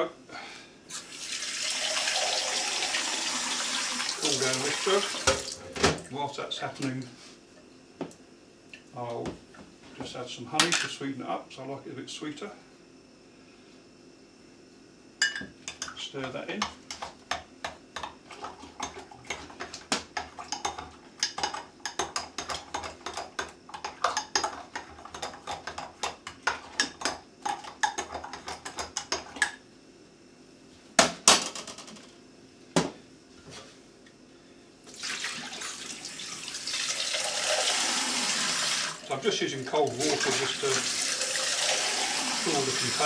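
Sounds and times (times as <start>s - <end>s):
tap water running into sink: 0.9s - 5.7s, 34.9s - 39.0s, 39.7s - 43.0s.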